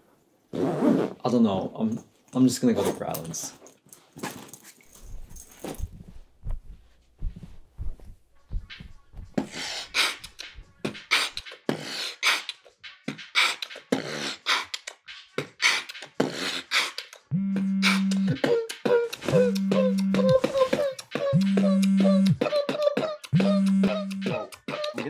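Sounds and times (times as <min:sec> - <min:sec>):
man beatboxing: 0:09.4 - 0:25.0.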